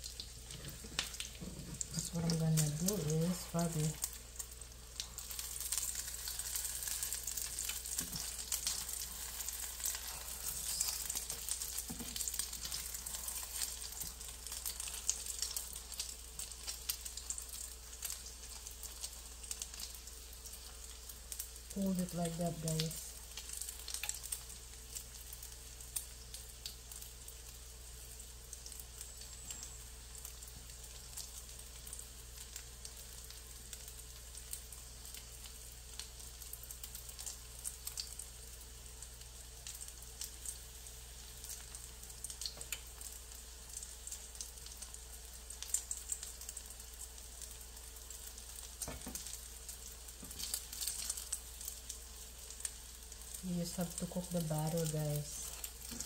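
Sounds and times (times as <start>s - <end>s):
oil crackles and pops: 0.0s - 56.0s
omelette sizzling in oil: 0.0s - 56.0s.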